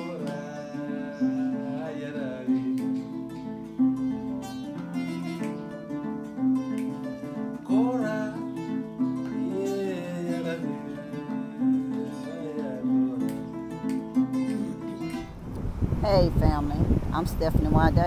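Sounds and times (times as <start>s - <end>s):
person singing: 0.0s - 5.6s, 7.2s - 15.2s
acoustic guitar strumming: 0.0s - 18.0s.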